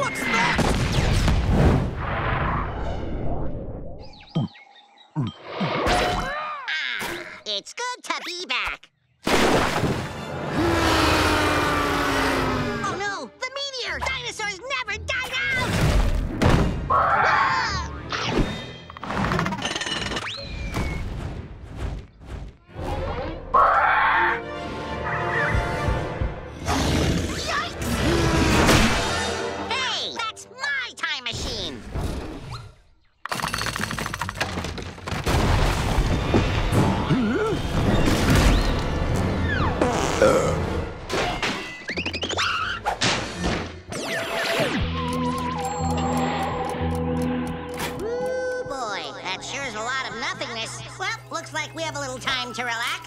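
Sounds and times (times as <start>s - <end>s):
cartoon soundtrack music: 10.3s - 19.4s, 22.6s - 31.9s, 36.5s - 53.0s.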